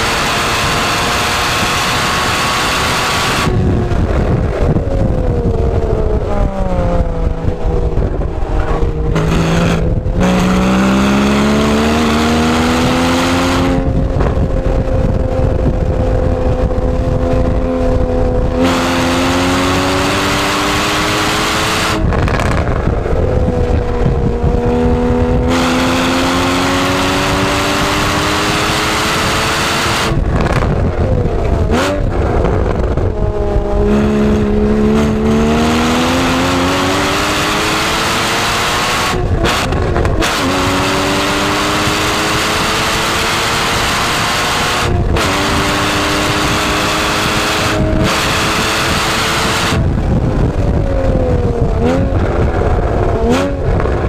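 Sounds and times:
car engine revving: 0.0s - 54.0s
road and wind noise: 0.0s - 54.0s.

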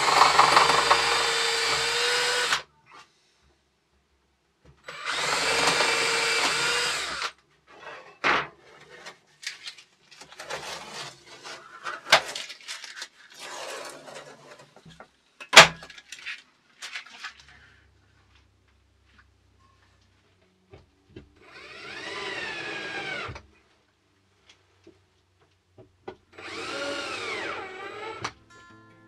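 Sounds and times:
cordless drill boring through steel: 0.0s - 2.6s, 4.9s - 7.3s, 21.4s - 23.4s, 26.4s - 28.3s.

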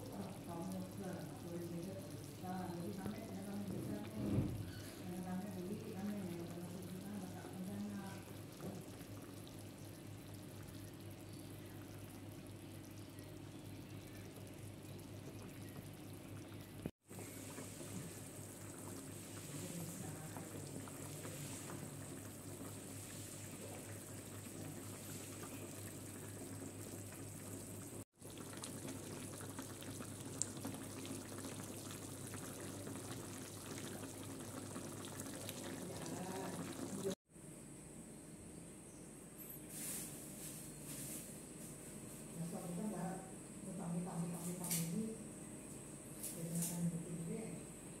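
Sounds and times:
stew bubbling and hissing: 0.0s - 37.2s.

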